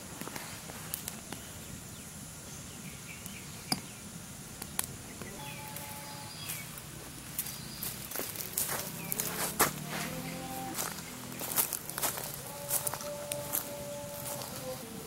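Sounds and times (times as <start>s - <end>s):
high insect drone: 0.0s - 15.0s
low hum: 4.4s - 15.0s
wood fire crackling pops: 4.6s - 5.3s
bird chirps: 5.0s - 6.8s.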